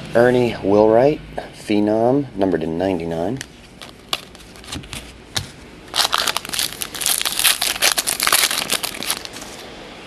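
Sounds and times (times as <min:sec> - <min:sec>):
card pack wrapper crinkling: 0:03.5 - 0:09.6.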